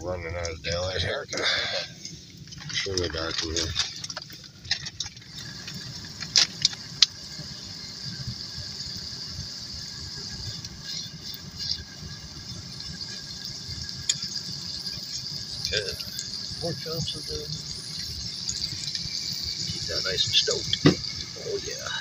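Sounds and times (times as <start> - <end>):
meat sizzling in a pan: 5.2 - 22.0.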